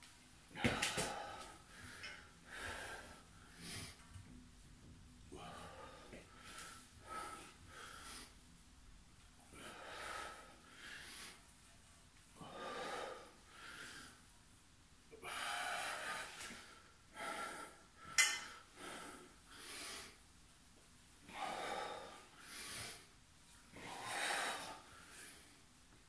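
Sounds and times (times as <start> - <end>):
man breathing hard: 0.5 - 4.2, 5.3 - 8.4, 9.5 - 11.5, 12.4 - 14.2, 15.2 - 20.2, 21.2 - 23.1, 23.7 - 25.6.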